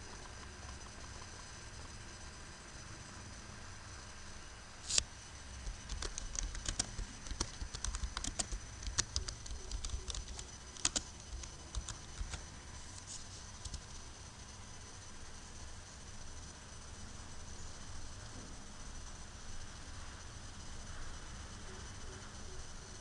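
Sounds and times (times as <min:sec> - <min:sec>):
keyboard key clicks: 0:05.7 - 0:12.4.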